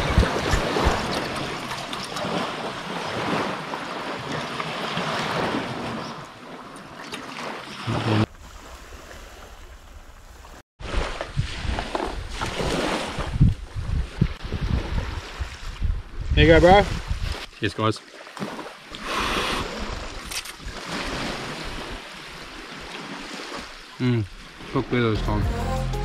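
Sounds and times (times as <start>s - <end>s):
wind buffeting microphone: 0.0s - 1.7s, 11.2s - 17.5s.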